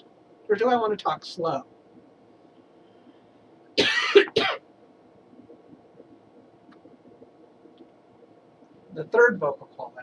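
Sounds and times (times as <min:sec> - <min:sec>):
man coughing: 0:03.8 - 0:04.6.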